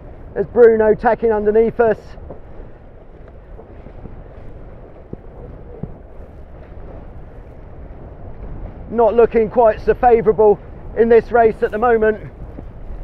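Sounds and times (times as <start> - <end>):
water rushing along hulls: 0.0 - 13.0
wind noise on microphone: 0.0 - 13.0.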